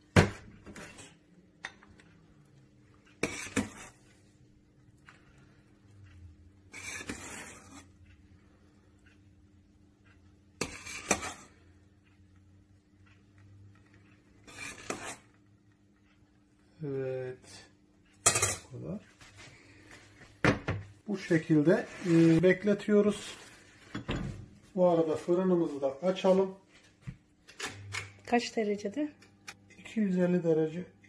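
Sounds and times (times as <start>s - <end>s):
ladle clinking and scraping on pot: 3.1s - 4.2s, 6.7s - 8.0s, 10.6s - 11.6s, 14.3s - 15.4s, 18.2s - 18.7s.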